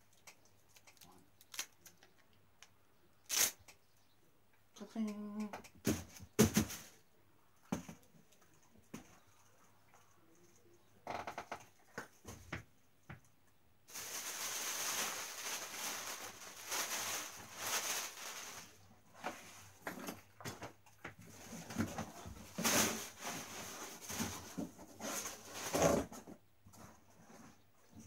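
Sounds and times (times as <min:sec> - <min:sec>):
plastic wrapping crinkling: 0:00.1 - 0:02.3, 0:03.3 - 0:03.6, 0:13.9 - 0:19.4.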